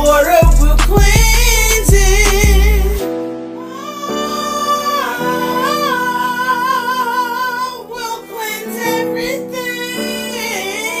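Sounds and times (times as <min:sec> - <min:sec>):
sustained backing chords: 0:00.0 - 0:11.0
woman singing with vibrato: 0:03.6 - 0:11.0.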